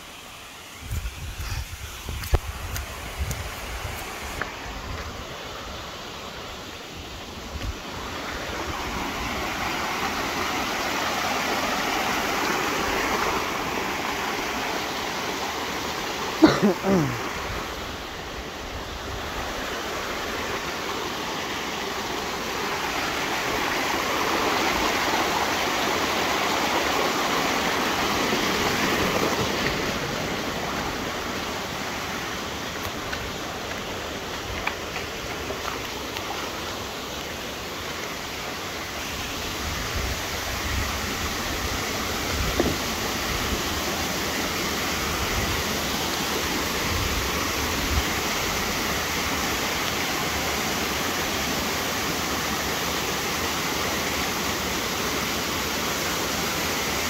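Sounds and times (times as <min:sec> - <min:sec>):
water rushing over rocks: 0:00.0 - 0:57.0.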